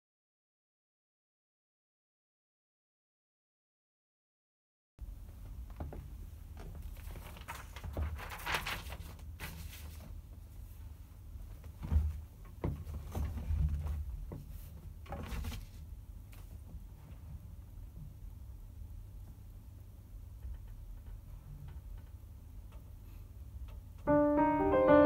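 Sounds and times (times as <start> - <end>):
paper rustling: 6.6 - 10.3.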